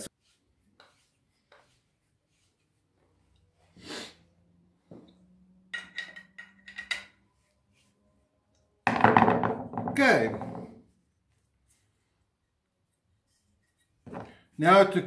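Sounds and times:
sharp breath through nose: 3.7 - 4.2.

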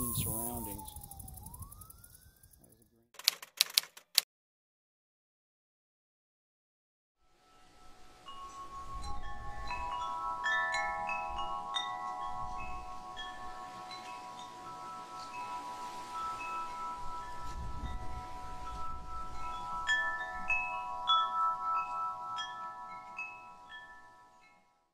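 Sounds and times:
wind chimes ringing: 0.0 - 2.5, 7.5 - 24.8.

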